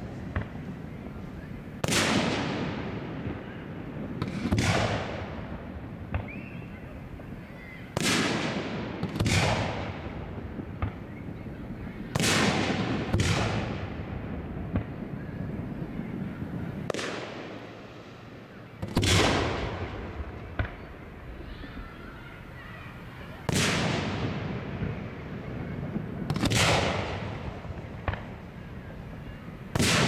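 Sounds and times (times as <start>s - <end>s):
firework booms with echo: 0.0s - 18.0s, 18.8s - 21.5s, 23.4s - 30.0s
faint firework cracks: 1.8s - 3.4s, 4.1s - 6.6s, 7.8s - 11.2s, 12.0s - 14.1s, 14.7s - 15.2s, 16.7s - 17.9s, 18.8s - 22.0s, 23.4s - 25.1s, 25.7s - 28.6s, 29.6s - 30.0s.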